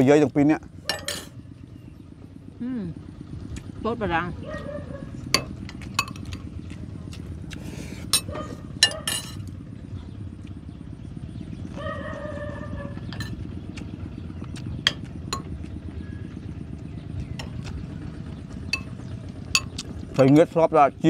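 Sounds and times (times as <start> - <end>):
low steady rumble: 0.0 - 21.0
spoons clicking on plates: 5.4 - 6.5, 8.1 - 9.4.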